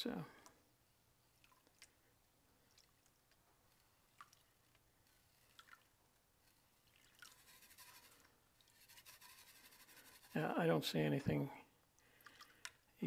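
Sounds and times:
water sloshing in a pan: 1.2s - 10.3s.

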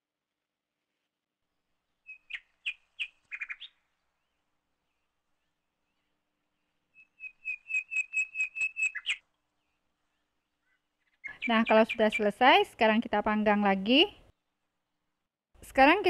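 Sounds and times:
bird chirping: 1.9s - 12.6s.

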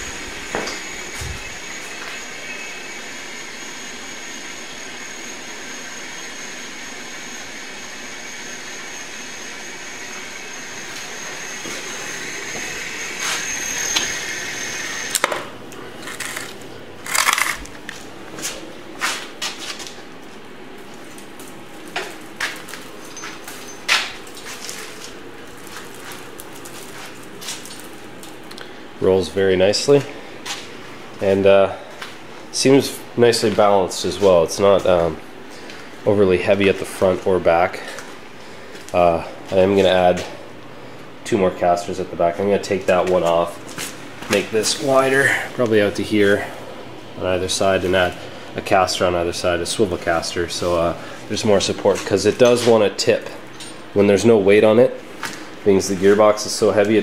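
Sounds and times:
electric motor whining: 0.0s - 15.3s.

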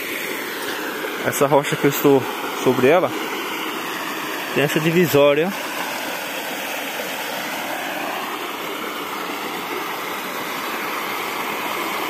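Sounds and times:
water pouring over rock: 0.0s - 12.0s.

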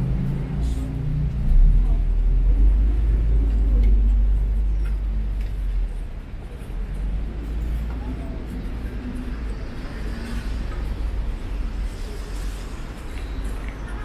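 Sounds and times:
faint voices: 0.0s - 14.0s.

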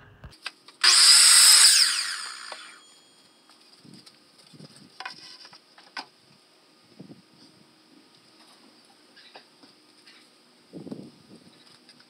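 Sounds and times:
miter saw running: 0.8s - 3.0s.

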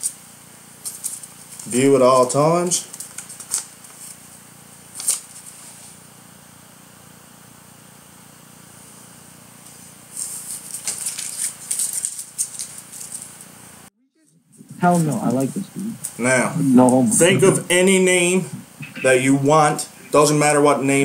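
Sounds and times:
steady hiss: 14.5s - 21.0s.

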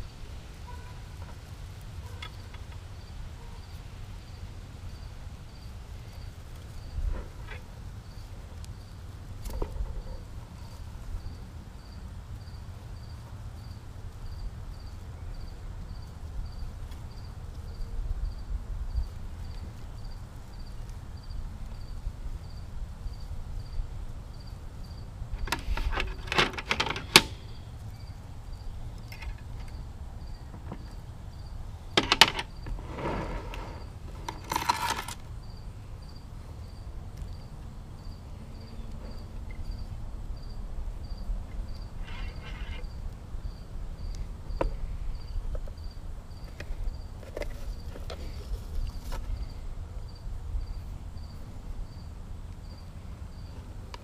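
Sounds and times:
faint insect chirp: 0.0s - 54.0s
wire rustling: 31.9s - 35.4s, 41.8s - 43.2s.

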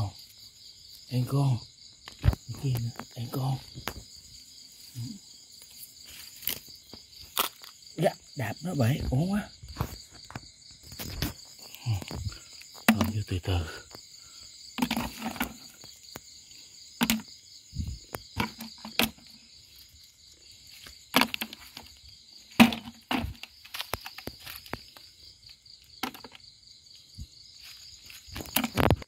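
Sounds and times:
crickets chirring: 0.0s - 29.0s
shells dropping into plastic bucket: 14.8s - 15.7s, 22.6s - 24.2s.

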